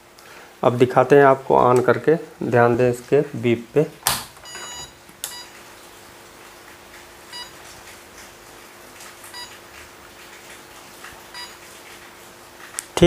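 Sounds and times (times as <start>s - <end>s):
faint steady hum: 0.0s - 13.0s
buzzer short high beeps: 4.4s - 5.5s, 7.3s - 7.6s, 9.4s - 9.6s, 11.4s - 11.6s.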